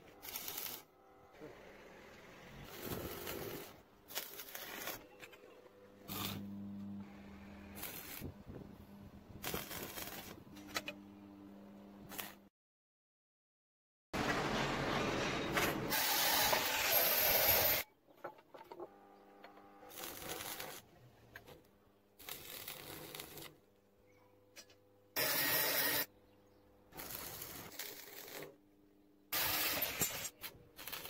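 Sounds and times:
welding arc crackling and hissing: 0.2 - 0.9, 2.5 - 5.0, 6.0 - 6.4, 7.6 - 8.7, 9.3 - 10.4, 12.1 - 12.4, 19.9 - 20.8, 22.2 - 23.6, 26.9 - 28.6, 29.3 - 31.0.

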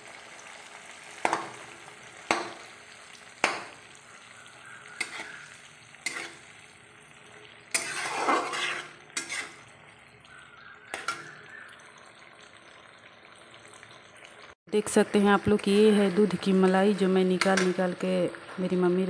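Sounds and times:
cream sizzling in a pan: 0.0 - 14.6
spatula scraping pan: 4.8 - 9.8, 10.9 - 11.5.

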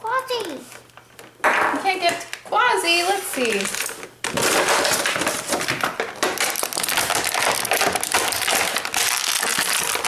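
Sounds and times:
plastic packaging crinkling: 3.0 - 10.0.

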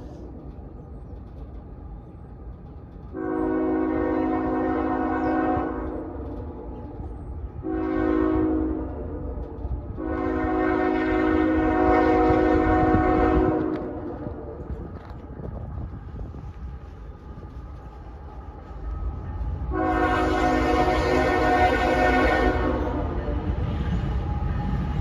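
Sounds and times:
train air horn blasts: 3.1 - 6.8, 7.6 - 14.7, 19.7 - 24.3.

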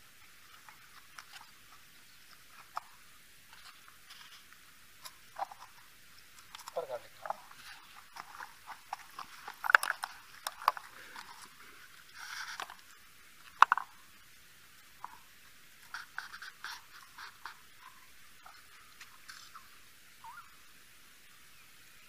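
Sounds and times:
brief rustle: 3.5 - 5.8
footsteps on loose stones: 6.4 - 14.0.

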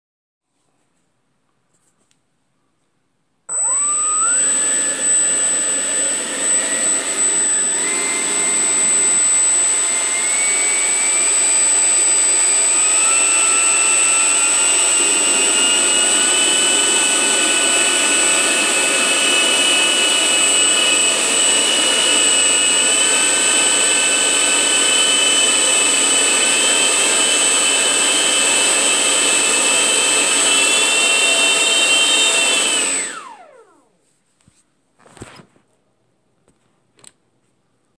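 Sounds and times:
whistle tones climbing in pitch: 3.5 - 15.8
electric ducted fans whining: 3.5 - 33.8.

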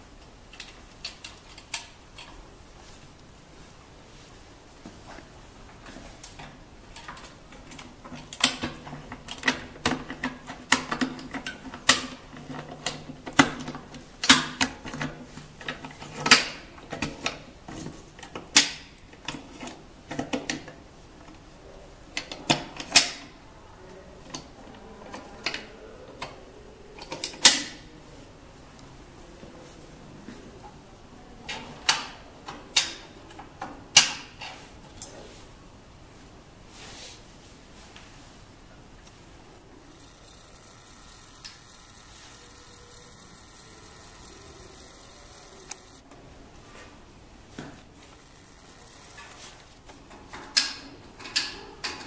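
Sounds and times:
faint low hum: 34.4 - 52.0.

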